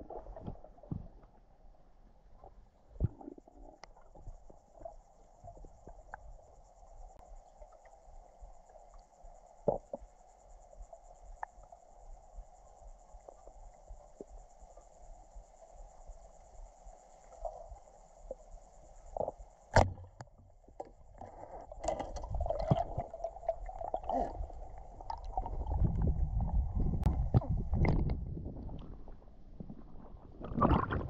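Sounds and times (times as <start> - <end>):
muffled water sloshing: 19.1 - 31.0
low rumble: 25.0 - 31.0.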